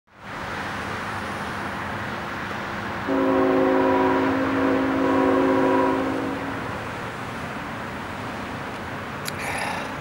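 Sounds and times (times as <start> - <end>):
freight train rumble: 0.1 - 10.0
locomotive horn chord: 3.1 - 6.7.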